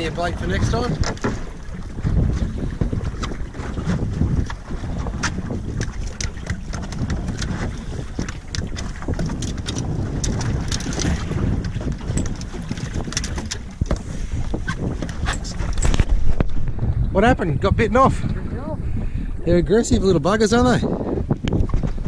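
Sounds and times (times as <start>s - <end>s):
sea washing: 0.0s - 22.0s
wind buffeting microphone: 0.0s - 22.0s
taps and knocks on boat deck: 0.7s - 16.5s.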